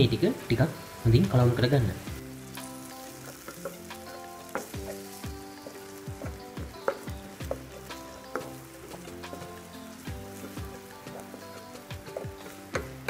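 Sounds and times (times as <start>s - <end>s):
food sizzling in a wok: 0.0s - 13.0s
spatula scraping and tapping pan: 2.6s - 13.0s.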